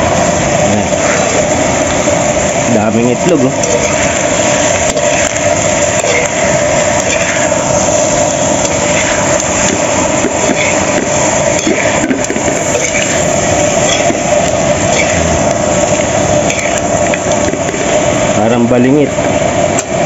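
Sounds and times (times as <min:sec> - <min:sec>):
cooking fire roaring: 0:00.0 - 0:20.0
crackles from frying pan: 0:00.0 - 0:20.0.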